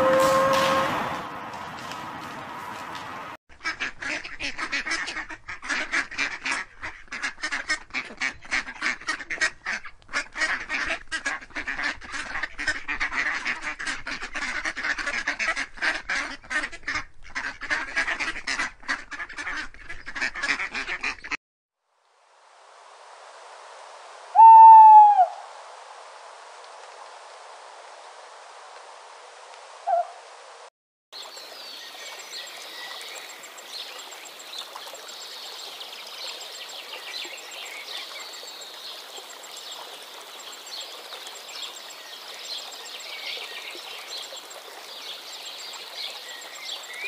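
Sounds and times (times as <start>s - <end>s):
ducks quacking: 3.6s - 21.4s.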